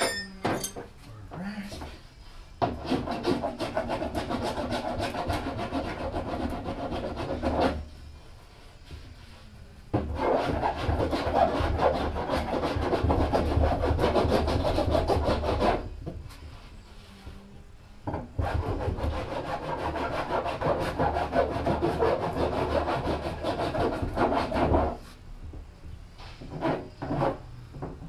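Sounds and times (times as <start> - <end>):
rasp file scraping: 2.6 - 7.9, 10.0 - 15.9, 18.4 - 25.1, 26.2 - 27.4.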